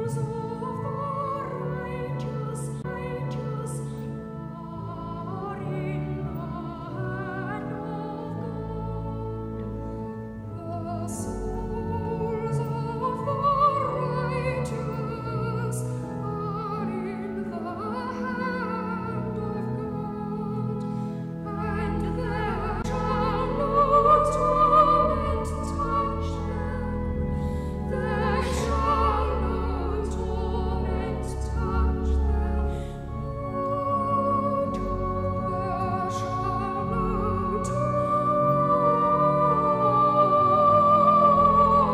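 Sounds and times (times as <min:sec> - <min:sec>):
organ accompaniment: 0:00.0 - 0:41.9
voices singing sacred music: 0:21.5 - 0:41.9.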